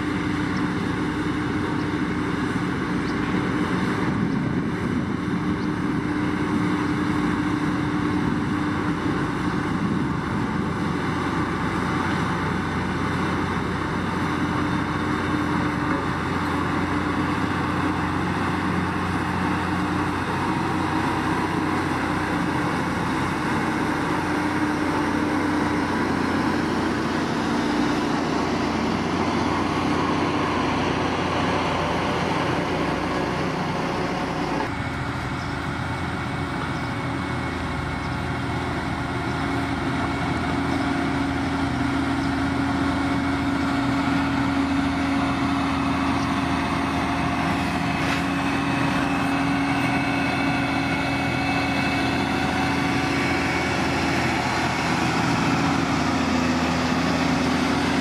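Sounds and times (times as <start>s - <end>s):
grader pushing gravel: 0.0s - 58.0s
heavy diesel machinery engine drone: 0.0s - 58.0s.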